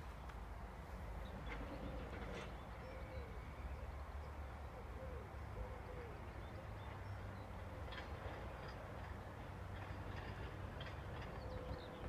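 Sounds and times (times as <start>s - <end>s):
dove cooing: 4.8s - 6.2s.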